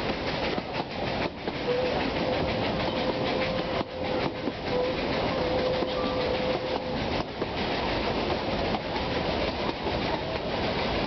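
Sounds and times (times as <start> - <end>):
carriages rattling: 0.0 - 11.0
train wheels clattering over rail joints: 0.0 - 11.0.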